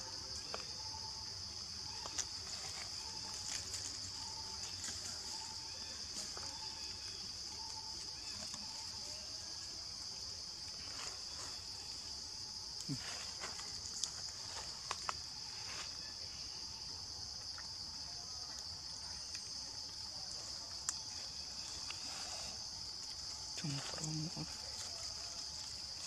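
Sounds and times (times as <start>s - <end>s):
insect chorus droning: 0.0s - 26.0s.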